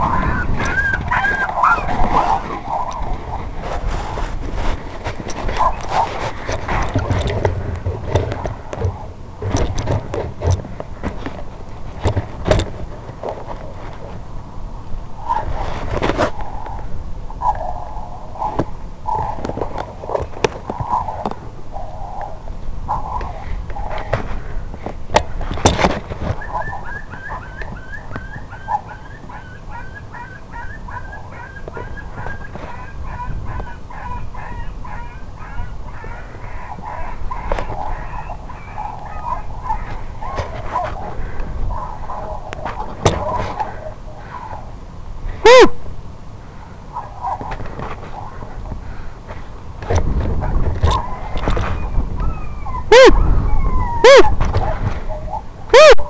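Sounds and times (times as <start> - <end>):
coyote distress yelps: 0.0 - 3.5, 26.4 - 44.7, 45.4 - 45.8, 50.9 - 56.0.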